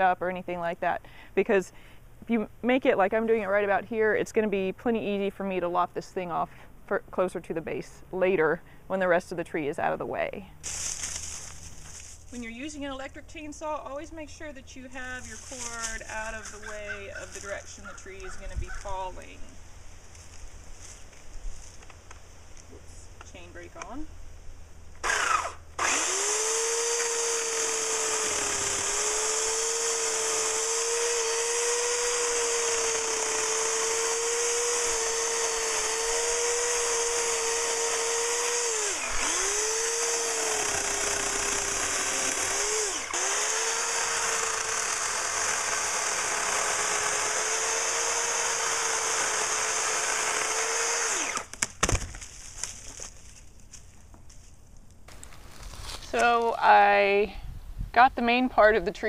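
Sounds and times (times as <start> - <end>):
electric chainsaw cutting wood: 14.9 - 18.9, 25.0 - 52.1.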